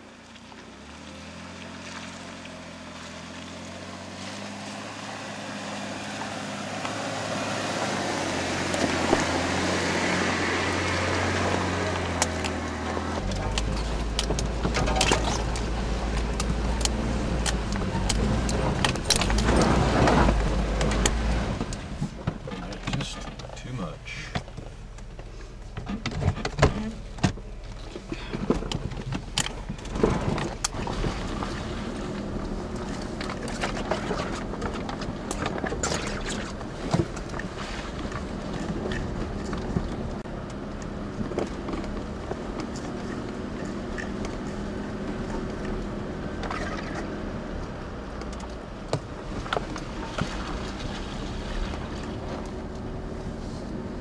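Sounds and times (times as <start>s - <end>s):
vehicle engine running slowly: 0.0s - 54.0s
vehicle body rattling and knocking: 12.0s - 40.3s.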